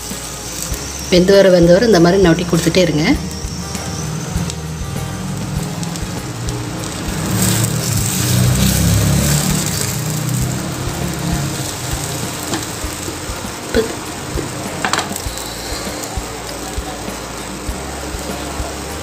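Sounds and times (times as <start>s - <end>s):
egg sizzling in oil: 0.0s - 19.0s.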